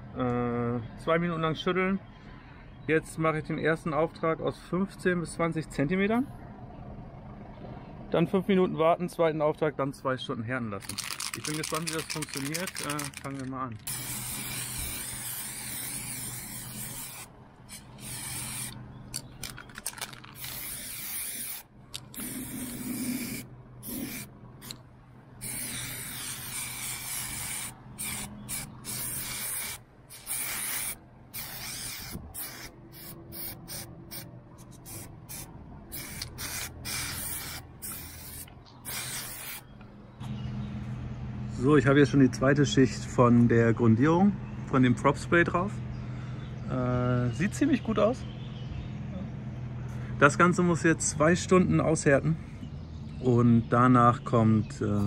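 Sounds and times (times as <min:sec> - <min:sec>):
aerosol spray can hissing: 0:10.8 - 0:19.6, 0:20.3 - 0:24.8, 0:25.4 - 0:39.6.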